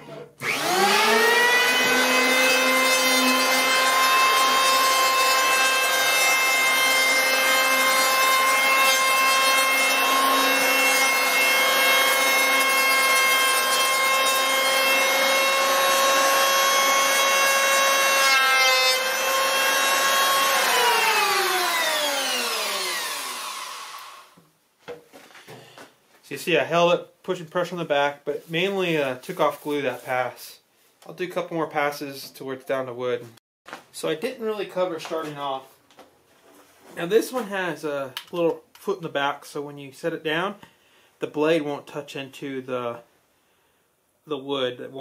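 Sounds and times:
electric hand planer whine: 0.4 - 24.4.

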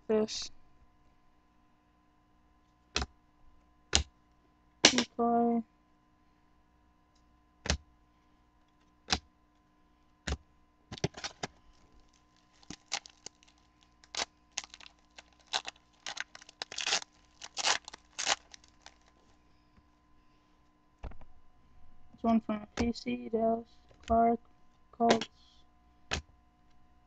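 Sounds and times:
foil wrappers and cards crackling: 11.0 - 19.3.

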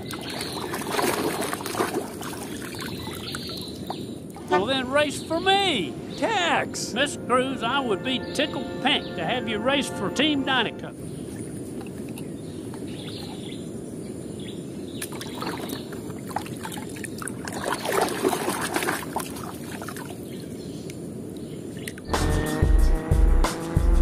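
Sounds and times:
muddy water sloshing and splashing: 0.0 - 4.6, 15.0 - 20.4.

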